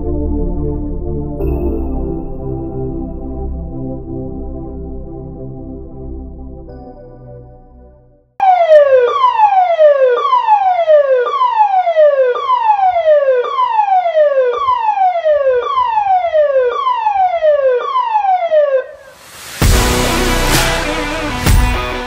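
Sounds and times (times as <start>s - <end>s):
electronic warning siren: 8.4s - 22.0s.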